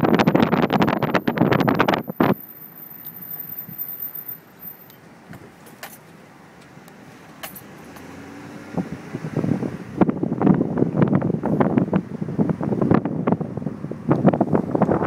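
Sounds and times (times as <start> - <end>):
wind buffeting microphone: 0.0 - 2.5, 8.6 - 15.0
car driving at low speed: 0.0 - 15.0.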